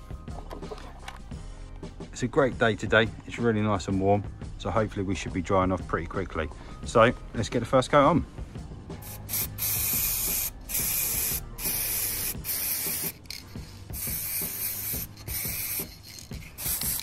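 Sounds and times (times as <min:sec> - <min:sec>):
aerosol spray hissing: 0:09.0 - 0:17.0.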